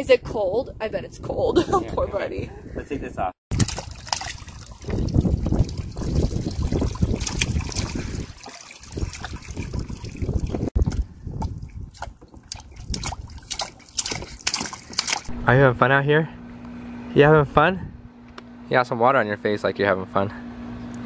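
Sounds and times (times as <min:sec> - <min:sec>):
wind buffeting microphone: 0:00.0 - 0:14.5
hands slapping water: 0:03.5 - 0:15.3
water dripping: 0:03.5 - 0:15.3
water splashing and trickling: 0:03.5 - 0:15.3.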